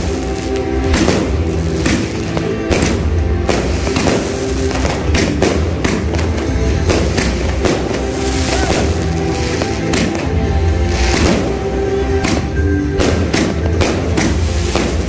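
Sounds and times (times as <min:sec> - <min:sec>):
background music with bass line: 0:00.0 - 0:15.0
fireworks bangs: 0:00.0 - 0:15.0.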